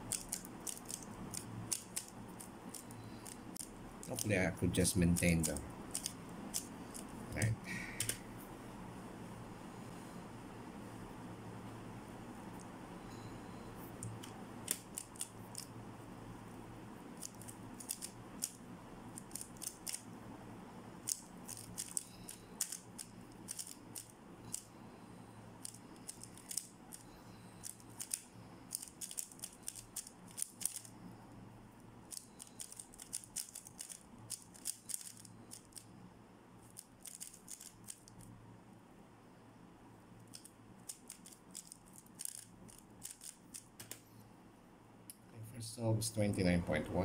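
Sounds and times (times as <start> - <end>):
puzzle cube turning clicks: 0.0 - 4.3, 5.2 - 7.1, 14.0 - 15.7, 17.2 - 20.1, 21.0 - 24.7, 25.6 - 30.9, 32.1 - 35.9, 36.7 - 38.3, 40.2 - 44.0.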